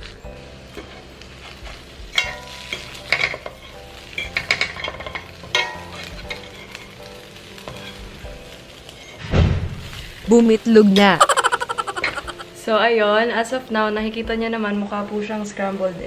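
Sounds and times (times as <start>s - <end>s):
batter sizzling in a pan: 0.0s - 16.0s
metal spoon scraping a pan: 2.2s - 8.1s.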